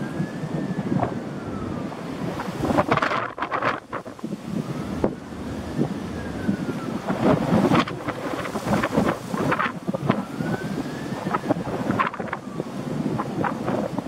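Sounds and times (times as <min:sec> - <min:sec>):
wind buffeting microphone: 0:00.0 - 0:14.0.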